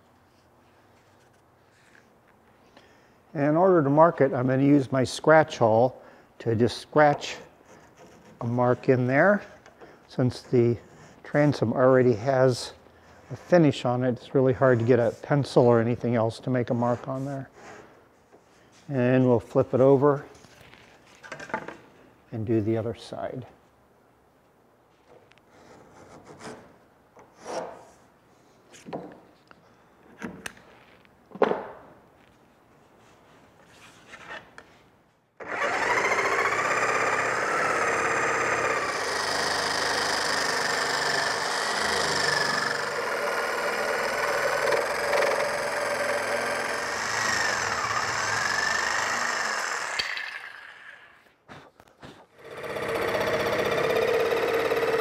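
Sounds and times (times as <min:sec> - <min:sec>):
jigsaw cutting wood: 0:35.4 - 0:51.0, 0:52.4 - 0:55.0.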